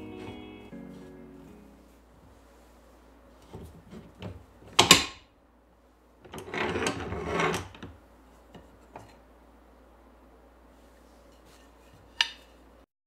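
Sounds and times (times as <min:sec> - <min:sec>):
clamp bars sliding and rattling: 0:06.3 - 0:07.9.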